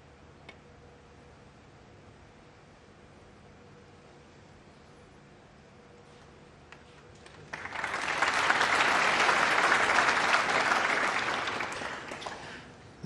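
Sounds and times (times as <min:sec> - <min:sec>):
audience applauding: 0:07.2 - 0:12.7.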